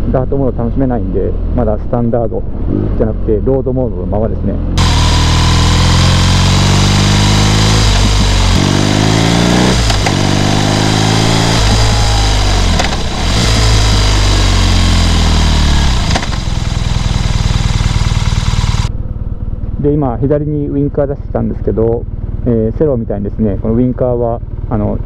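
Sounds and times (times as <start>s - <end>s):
motorcycle engine revving: 4.4s - 22.7s.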